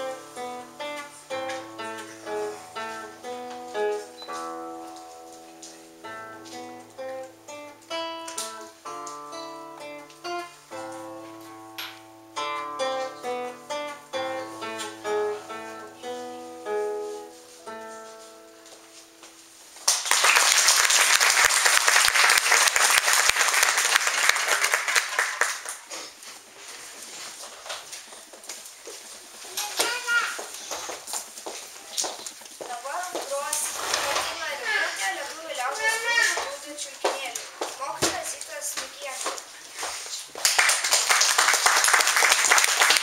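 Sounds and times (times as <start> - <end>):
classical guitar playing: 0.0 - 19.8
audience applauding: 19.8 - 26.2, 40.3 - 43.0.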